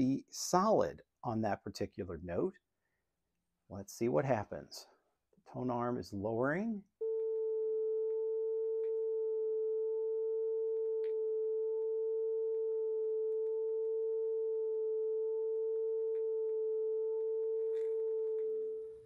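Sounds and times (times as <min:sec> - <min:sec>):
steady test tone: 0:07.0 - 0:19.0.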